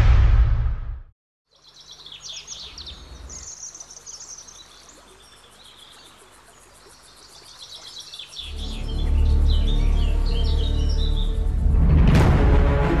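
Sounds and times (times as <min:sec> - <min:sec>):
low rumble: 0:00.0 - 0:01.1
small birds chirping: 0:01.5 - 0:11.5
faint outdoor hiss: 0:01.5 - 0:11.6.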